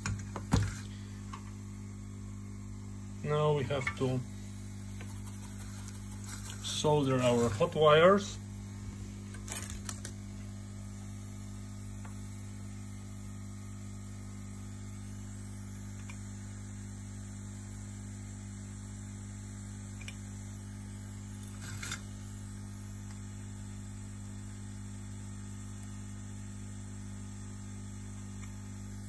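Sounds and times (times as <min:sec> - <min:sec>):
electrical mains hum: 0:00.0 - 0:29.0.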